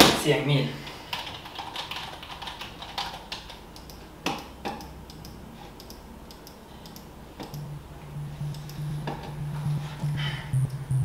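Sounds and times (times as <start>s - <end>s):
sharp clicks and taps: 3.4s - 7.7s
background music: 7.6s - 11.0s.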